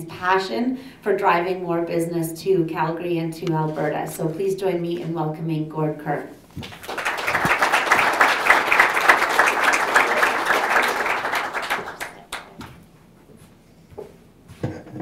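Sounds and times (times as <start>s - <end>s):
audience applauding: 6.6s - 12.7s.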